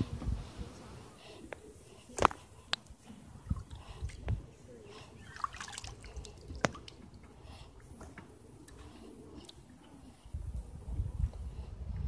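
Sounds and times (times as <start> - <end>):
water dripping and lapping: 1.6 - 10.3.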